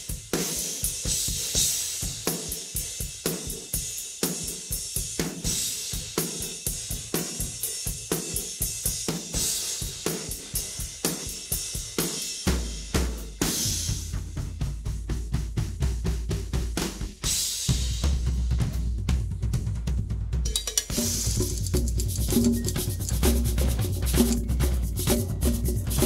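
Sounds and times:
rock drum beat: 0.0s - 26.0s
cymbals washing: 20.5s - 26.0s.

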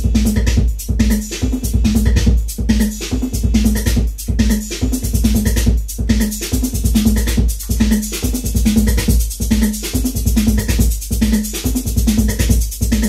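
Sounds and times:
drum machine beat: 0.0s - 13.0s.

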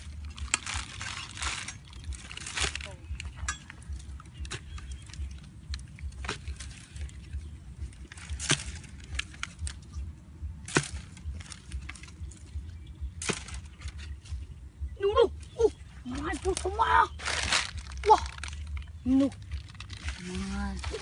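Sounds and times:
dirt scraping: 0.0s - 14.5s, 15.7s - 21.0s
digging tool striking ground: 8.0s - 14.4s.

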